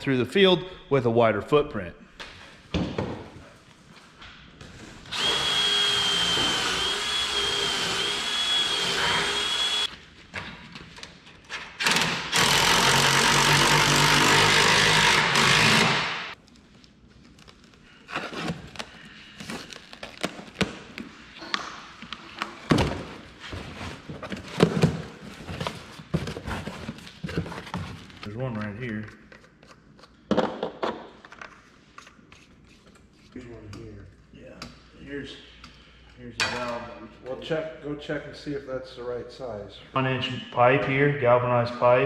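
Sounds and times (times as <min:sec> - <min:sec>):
power drill whining: 0:05.1 - 0:09.9, 0:11.8 - 0:16.1.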